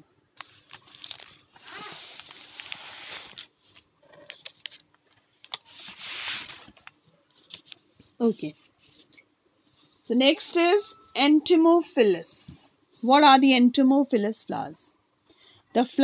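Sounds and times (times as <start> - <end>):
paper rustling: 0.4 - 9.2.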